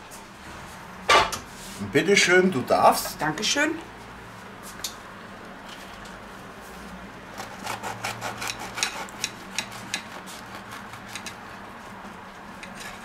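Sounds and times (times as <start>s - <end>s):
knife sawing through crisp tortilla: 7.3s - 13.0s.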